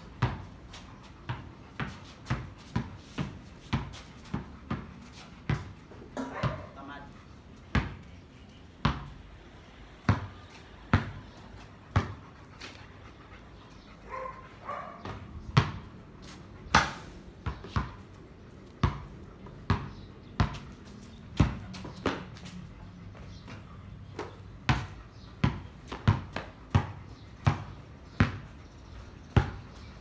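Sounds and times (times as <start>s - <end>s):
basketball bouncing on concrete: 0.0s - 12.8s, 14.7s - 30.0s
dog barking: 6.2s - 6.8s, 14.1s - 15.1s.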